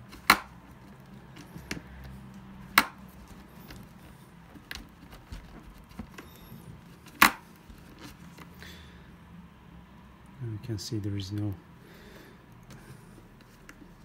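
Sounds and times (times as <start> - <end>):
cloth rubbing leather: 0.6 - 8.5.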